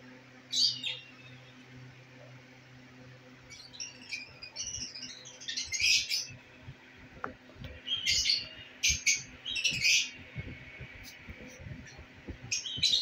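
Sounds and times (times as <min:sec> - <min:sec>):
lovebirds chirping: 0:00.5 - 0:01.8, 0:03.4 - 0:06.7, 0:07.6 - 0:13.0.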